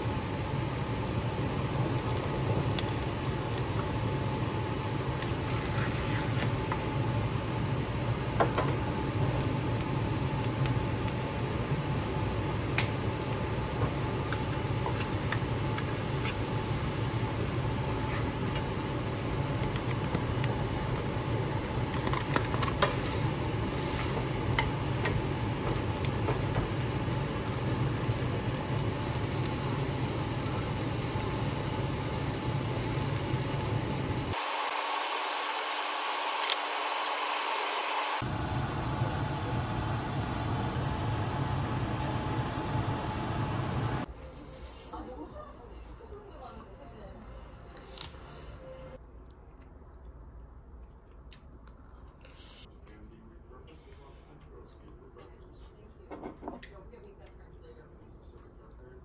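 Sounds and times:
food sizzling in a pan: 13.0 - 38.2
low hum: 38.2 - 44.2.

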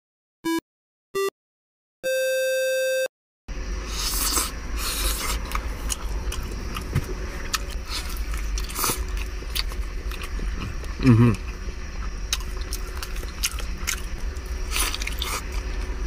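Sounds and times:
electronic beep tone: 2.0 - 3.1
chewing with mouth smacks: 3.9 - 16.0.

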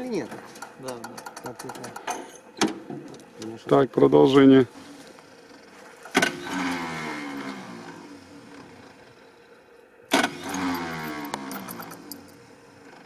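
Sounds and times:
starter clunk: 0.2 - 3.6, 5.5 - 8.9, 10.1 - 12.4
starter motor whirring: 4.4 - 13.0.

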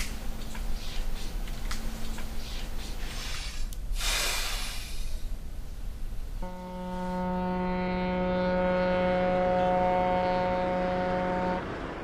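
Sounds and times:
ship's horn blast: 6.4 - 12.0.

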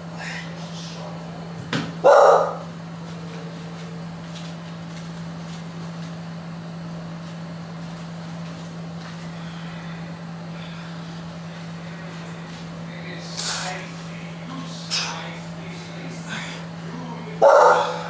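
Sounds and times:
steady low hum: 0.0 - 18.0
bark-like cry: 2.0 - 2.7, 17.4 - 18.0.

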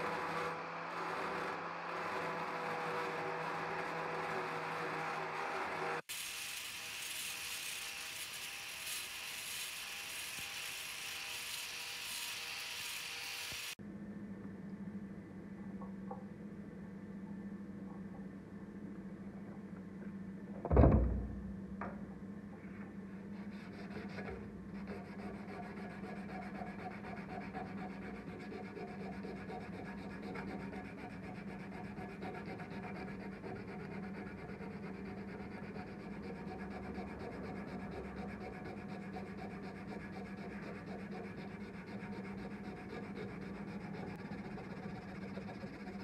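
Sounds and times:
sandpaper rubbing on blade: 6.1 - 13.8, 23.4 - 46.0
low hum: 13.8 - 26.9.

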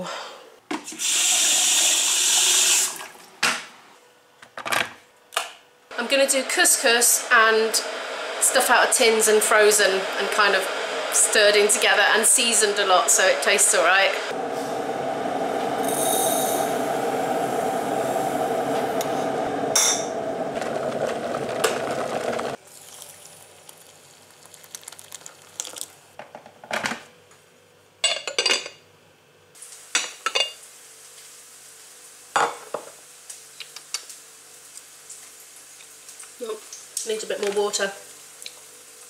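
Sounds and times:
grain pouring into a bowl: 22.6 - 25.9.

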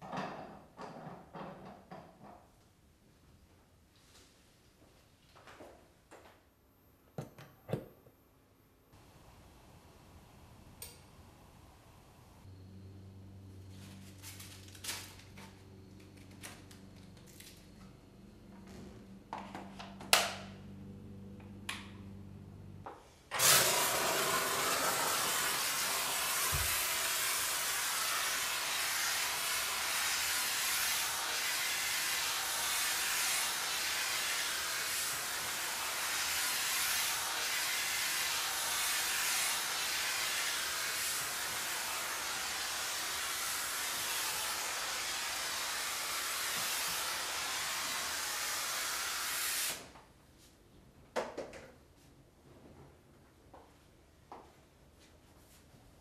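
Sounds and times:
steam hissing from nozzle: 23.3 - 49.9.

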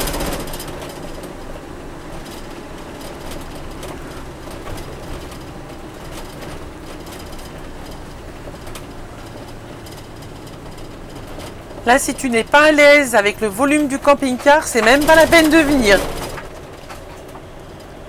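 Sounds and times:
faint irregular clicks: 0.0 - 11.9
vehicle engine and road hum: 0.0 - 18.0.

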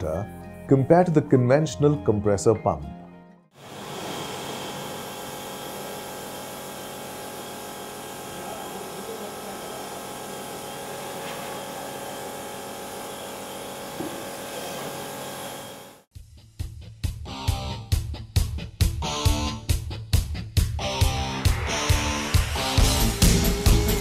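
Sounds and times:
water jet hissing: 3.6 - 15.9
pressure washer motor hum: 3.6 - 16.1.

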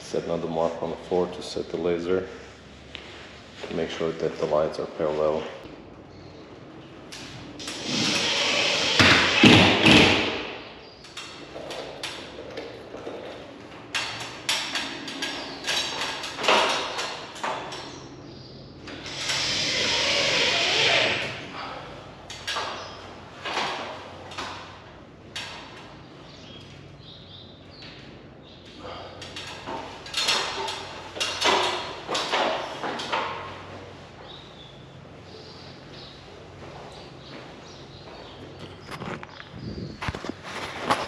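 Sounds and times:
noisy bursts: 7.1 - 10.8, 18.8 - 21.8.

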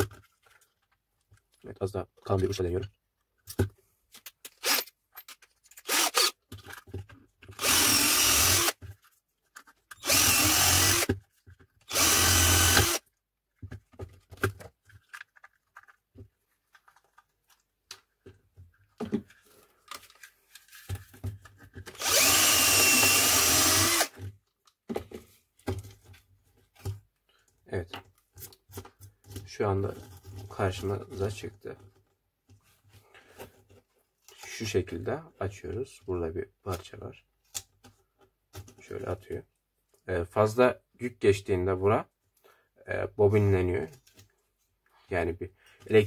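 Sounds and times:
power drill drilling plastic: 4.6 - 4.9, 5.8 - 6.4, 7.6 - 8.8, 10.0 - 11.1, 11.9 - 13.0, 22.0 - 24.2.

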